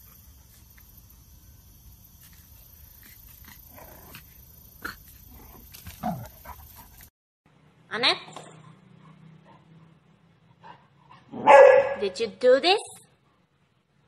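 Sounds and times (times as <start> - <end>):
puppy barking and growling: 3.0 - 6.8, 10.6 - 12.1.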